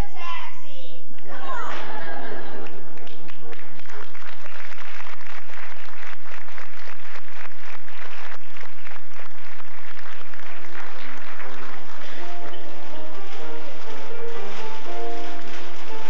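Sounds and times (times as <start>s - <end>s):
audience applauding: 1.7s - 16.0s
music with clear notes: 10.7s - 16.0s.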